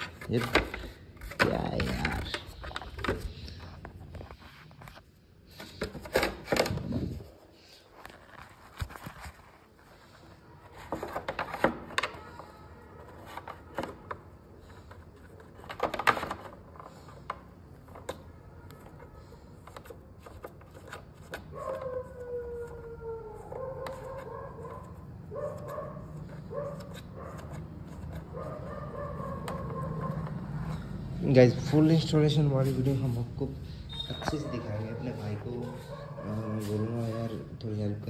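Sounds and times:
dog whining: 21.5 - 27.4, 33.7 - 37.4.

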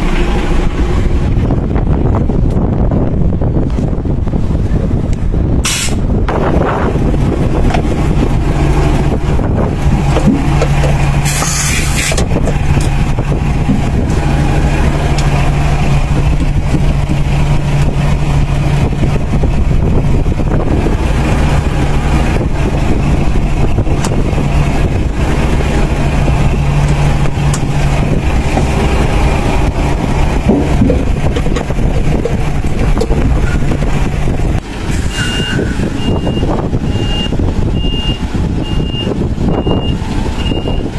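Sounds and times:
truck diesel engine idling: 0.0 - 40.9
compressed air hiss: 11.2 - 12.2
reversing beeps: 35.1 - 40.9.

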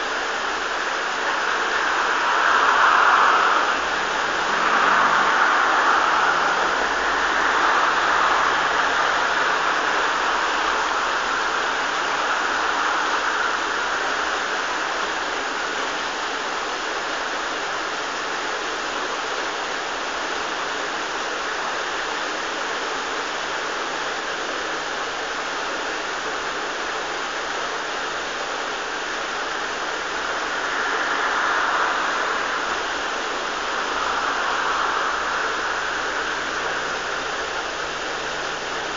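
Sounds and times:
water rushing: 0.0 - 16.8, 28.0 - 38.9.

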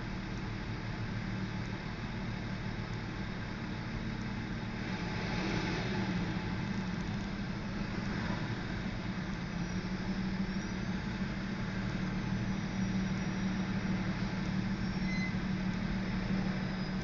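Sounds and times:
freight train rolling: 0.0 - 17.0
idling vehicles hum: 0.0 - 17.0
faint high squeals: 9.4 - 17.0.

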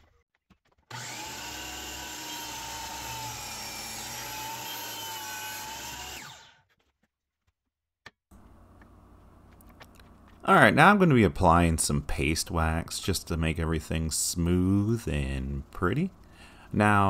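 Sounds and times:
power tool motor running: 0.9 - 6.6.

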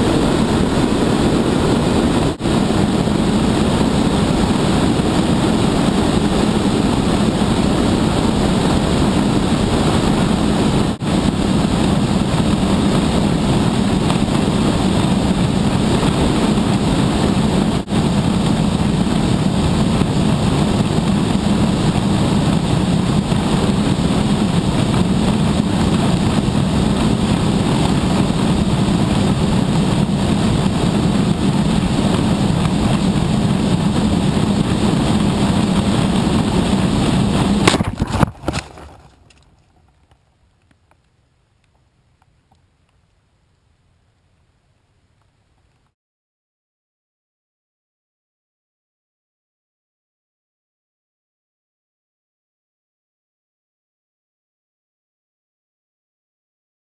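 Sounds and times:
wind buffeting camera: 0.0 - 43.6.

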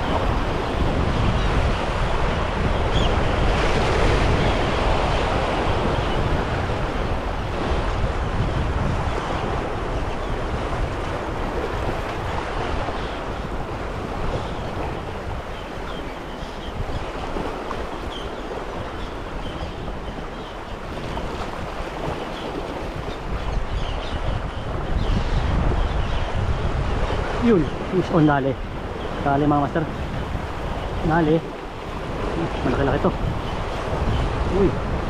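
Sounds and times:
sea surf washing against shore: 0.0 - 35.0
wind buffeting microphone: 0.0 - 35.0.

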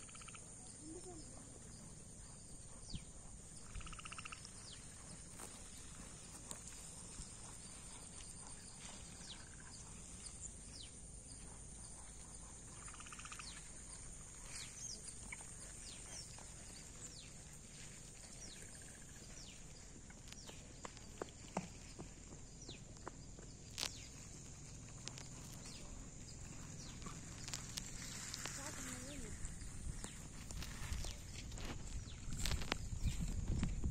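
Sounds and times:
high-pitched insect drone: 0.0 - 1.4.

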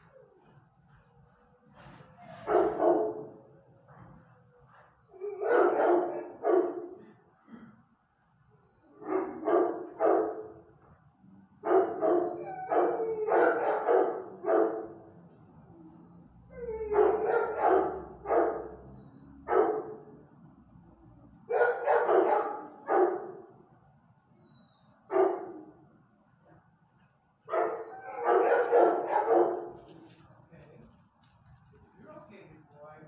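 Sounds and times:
dog barking: 2.4 - 3.4, 5.3 - 7.0, 9.0 - 10.5, 11.6 - 15.0, 16.6 - 18.9, 19.5 - 20.1, 21.5 - 23.5, 25.1 - 25.7, 27.5 - 29.9.

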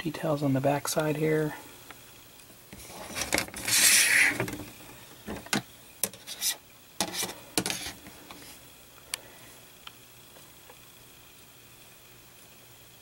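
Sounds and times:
plastic scraping rustle: 2.7 - 5.4.

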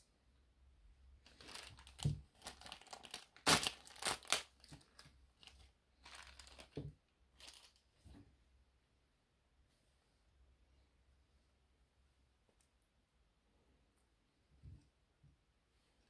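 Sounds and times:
plastic bag crinkling: 1.2 - 7.8.

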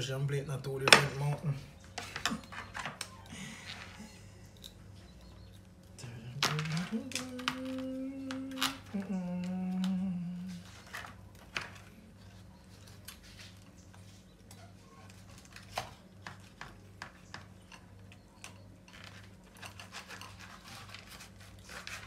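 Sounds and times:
steady low hum: 0.0 - 22.0
knife and fork scraping on board: 18.9 - 22.0.

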